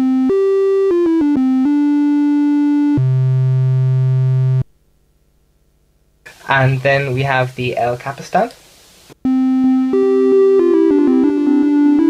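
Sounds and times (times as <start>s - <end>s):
analog synthesizer notes: 0.0s - 4.7s, 9.3s - 12.0s.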